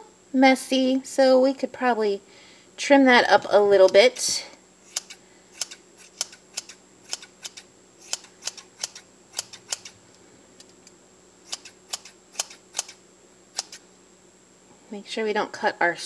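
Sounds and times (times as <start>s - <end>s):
scissors snipping yarn: 4.9s - 9.9s.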